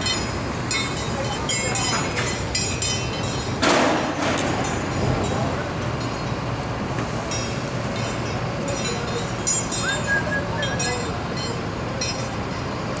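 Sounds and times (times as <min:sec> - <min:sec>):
whistle-like tone: 0:09.7 - 0:11.0.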